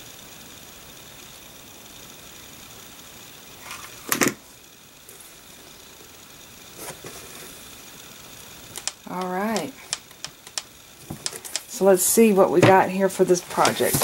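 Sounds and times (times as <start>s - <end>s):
faint steady hum: 0.0s - 14.0s
handling noises: 13.5s - 14.0s.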